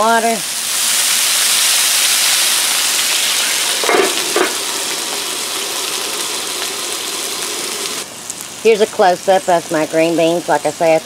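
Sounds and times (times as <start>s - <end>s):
water sizzling on hot griddle: 0.0s - 11.0s
metal dome clattering: 3.7s - 4.9s.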